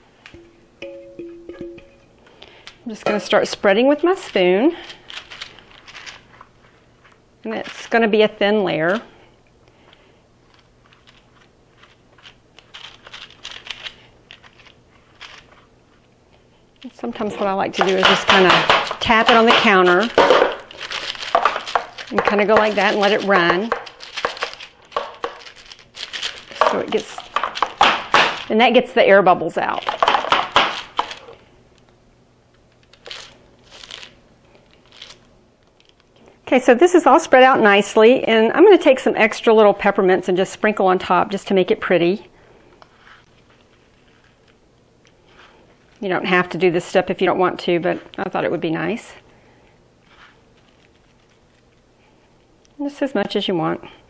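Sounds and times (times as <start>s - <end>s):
soft paper rustles: 4.2s - 7.9s, 9.7s - 18.1s, 20.6s - 27.8s, 32.6s - 36.4s, 42.9s - 46.1s, 50.0s - 52.5s
spoon scraping on wax paper: 20.8s - 27.4s.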